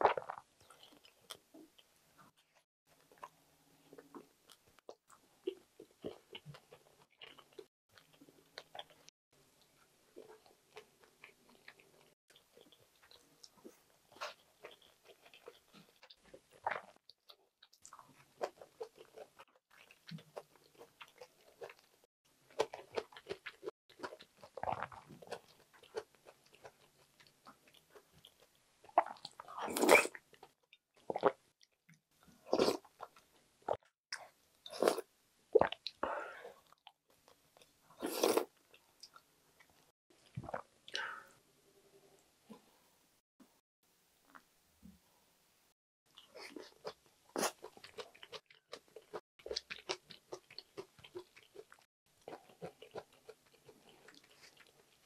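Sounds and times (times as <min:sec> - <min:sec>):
chewing with crunching bites: 0:00.0 - 0:01.9, 0:03.9 - 0:35.0, 0:46.1 - 0:55.0.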